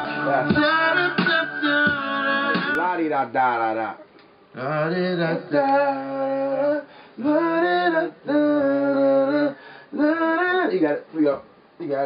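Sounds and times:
man singing unaccompanied: 0.0 - 2.8, 4.5 - 11.2.

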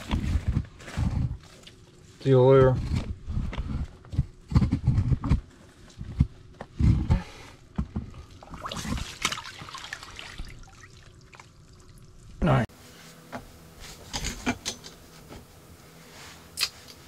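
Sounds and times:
fish splashing into water: 8.4 - 11.6.

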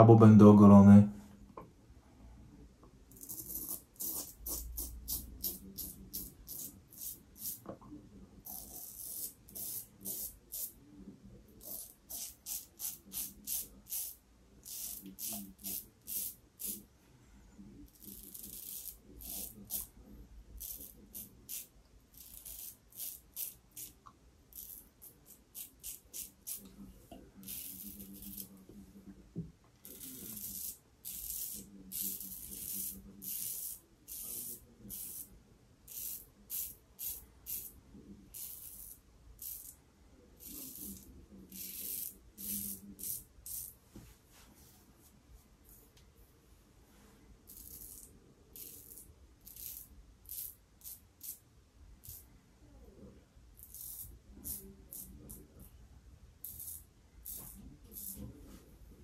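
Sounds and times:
razor cutting stubble: 17.9 - 19.9.

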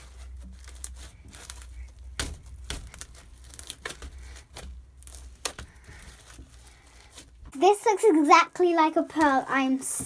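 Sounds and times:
slime crackling and popping: 0.0 - 7.2.

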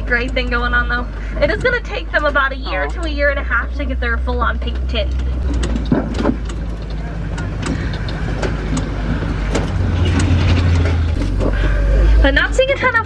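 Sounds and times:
truck engine rumble: 0.0 - 13.0
vehicle body knocks and rattles: 4.6 - 11.7.

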